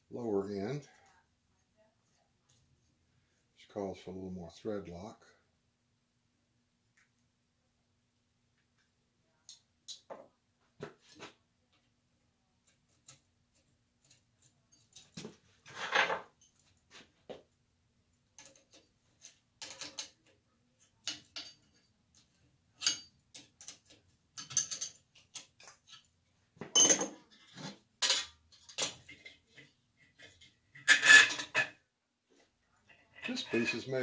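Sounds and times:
metal parts clinking and rattling: 18.4s - 20.2s, 22.8s - 26.1s, 30.8s - 31.7s.

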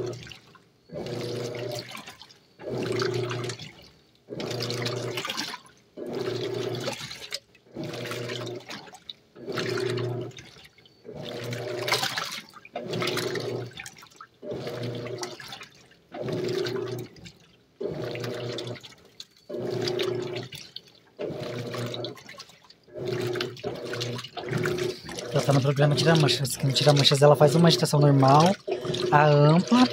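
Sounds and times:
washing machine motor humming: 0.0s - 29.9s
water sloshing: 0.0s - 29.9s.

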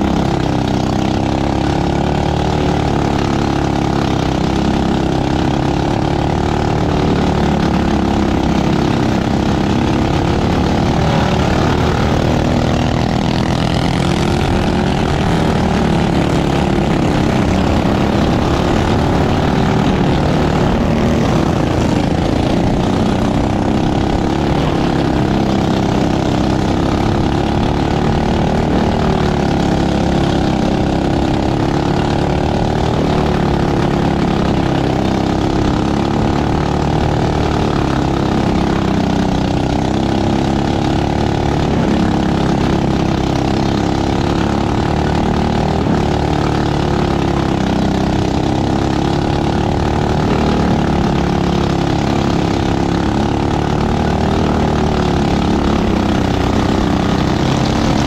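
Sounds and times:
kart engine at race pace: 0.0s - 58.0s.

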